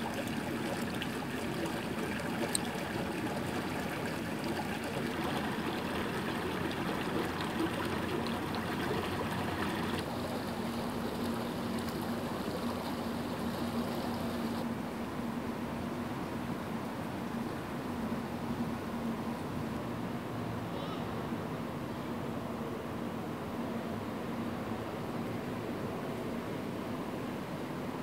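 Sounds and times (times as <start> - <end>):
fountain water splashing: 0.0 - 14.6.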